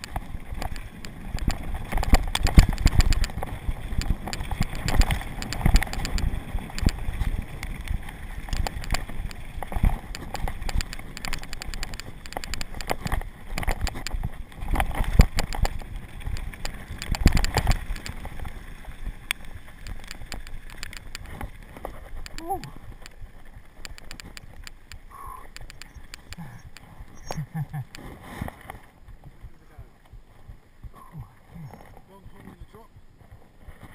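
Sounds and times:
bike clattering on bumps: 0.0 - 22.3.

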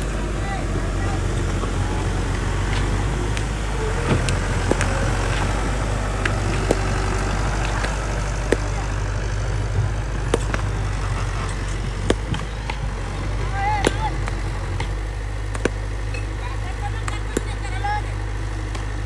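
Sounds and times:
diesel engine running: 0.0 - 19.0
sharp clicks and knocks: 9.8 - 10.7, 13.8 - 16.3.

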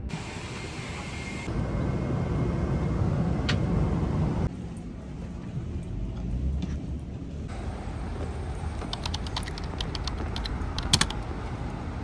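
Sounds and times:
airliner cabin drone: 0.0 - 6.2
jet bridge ambience: 0.0 - 12.0.

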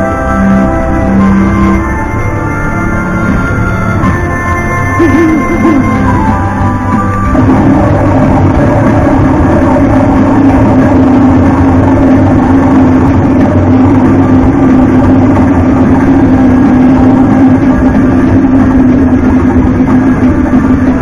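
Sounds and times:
rumbling drone with low tone: 0.0 - 21.0.

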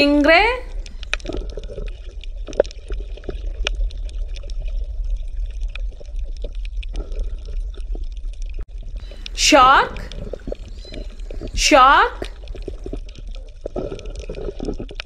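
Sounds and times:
underwater rumble of moving water: 0.6 - 11.7, 12.3 - 15.0
small clicks and crackles: 0.7 - 9.4, 12.2 - 15.0.

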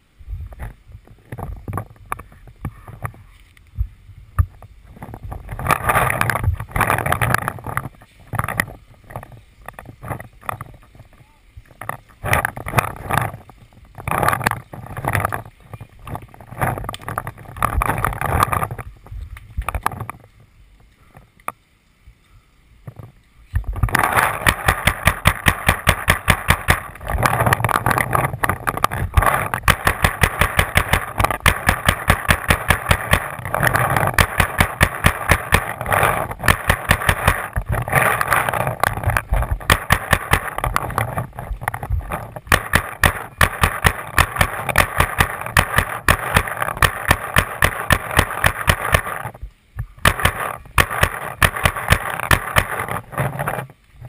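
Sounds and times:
player moving through brush: 22.9 - 54.0
paintball marker firing pops: 23.9 - 27.2, 28.7 - 38.1, 39.1 - 41.0, 42.5 - 49.3, 50.0 - 53.0.

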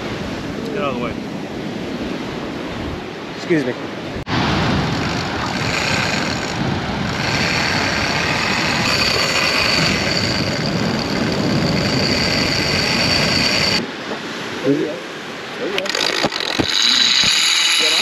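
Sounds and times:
electric motor whining: 4.8 - 13.8, 15.8 - 18.0.

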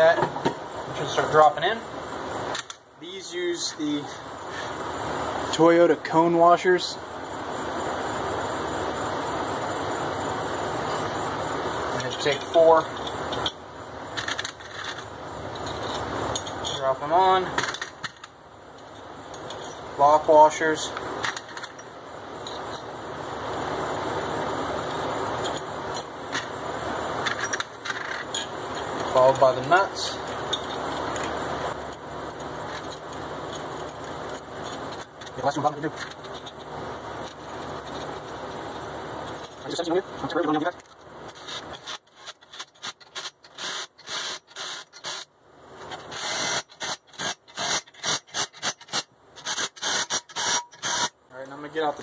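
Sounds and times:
steel washers clinking: 12.0 - 20.0, 24.8 - 26.6, 27.2 - 44.1
impact driver bursts: 46.1 - 51.2.

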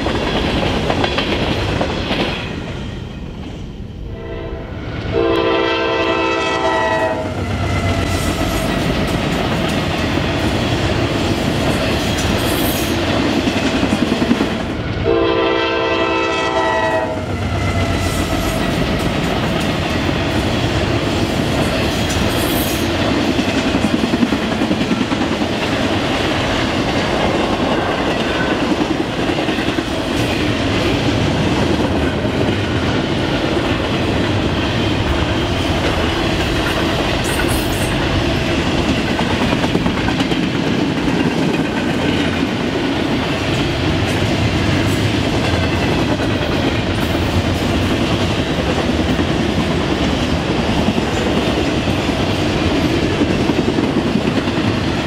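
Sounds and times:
train car clatter: 0.0 - 3.6, 17.3 - 55.0
freight train wheels on rail: 0.0 - 55.0
locomotive horn blasts: 4.1 - 7.9, 15.0 - 17.8.

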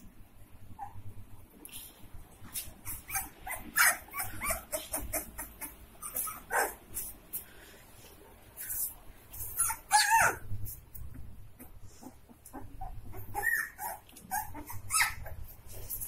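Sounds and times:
puppies yipping and barking: 2.7 - 7.1, 9.4 - 15.6.

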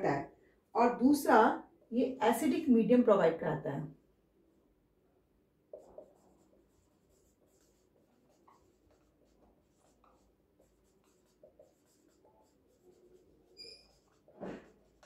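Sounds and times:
marker squeaking on whiteboard: 5.7 - 15.0.

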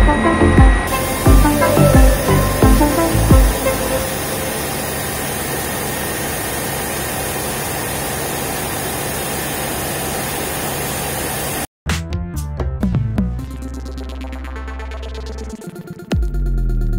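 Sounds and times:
helicopter engine and rotor: 0.0 - 11.7.

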